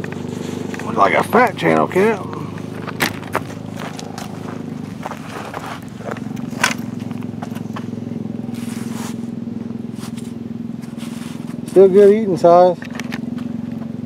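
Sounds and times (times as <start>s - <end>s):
steady engine hum: 0.0s - 14.0s.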